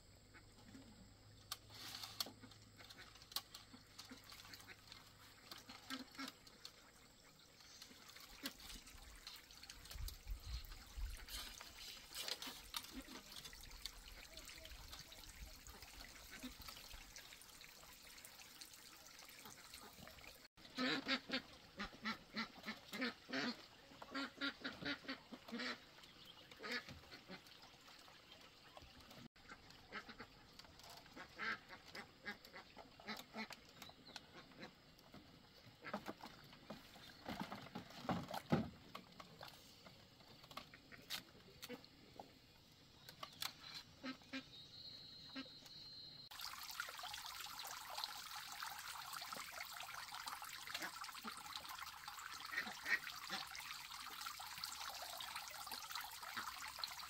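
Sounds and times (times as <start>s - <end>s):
ducks quacking: 2.2s - 6.5s, 19.5s - 25.9s, 26.5s - 27.5s, 29.4s - 33.6s, 43.5s - 44.5s, 47.6s - 53.9s
water trickling: 2.2s - 40.7s, 46.2s - 57.0s.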